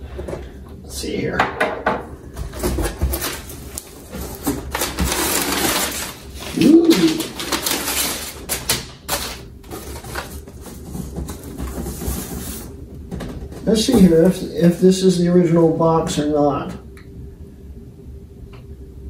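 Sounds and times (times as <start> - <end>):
paper and cardboard crinkling: 2.4 - 14.8
person humming: 6.5 - 7.4.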